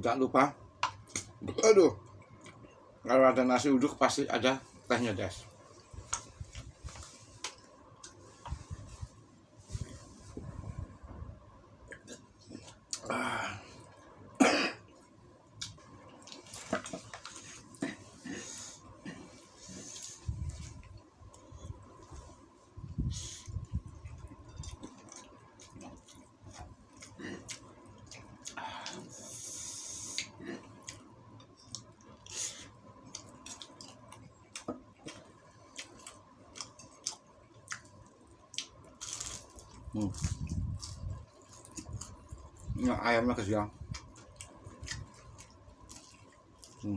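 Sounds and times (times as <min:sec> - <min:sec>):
man clearing his throat: 0:14.4 - 0:14.8
man coughing: 0:14.4 - 0:14.8
eating sounds: 0:23.1 - 0:43.0, 0:43.7 - 0:46.9.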